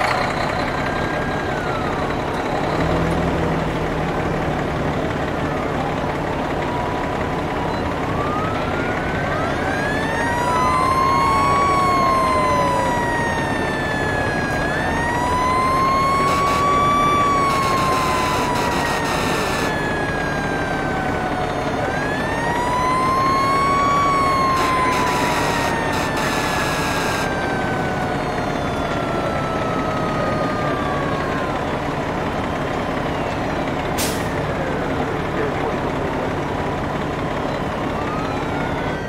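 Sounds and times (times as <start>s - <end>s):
fire engine siren wailing: 0.0s - 39.0s
second siren sweeping: 5.4s - 32.1s
harsh horn blasts: 17.5s - 19.7s, 24.6s - 27.4s.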